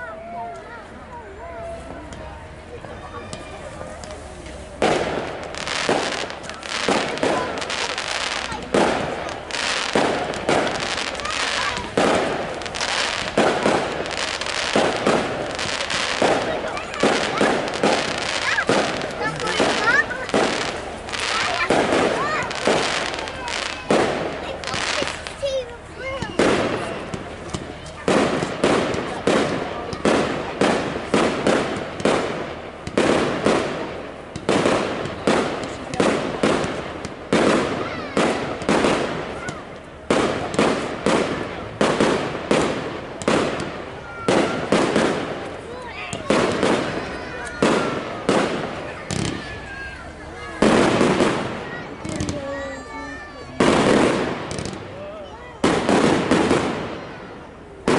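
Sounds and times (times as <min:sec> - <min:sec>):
crackle of burning fireworks: 0:00.0 - 0:57.9
fireworks bangs: 0:00.0 - 0:57.9
firework shells bursting: 0:04.8 - 0:25.4, 0:53.6 - 0:54.9.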